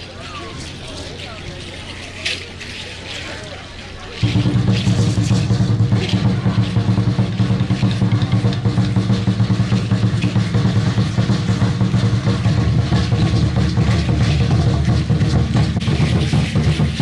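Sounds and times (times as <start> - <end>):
dense rattling: 0.0 - 17.0
large drum beaten fast: 4.2 - 17.0.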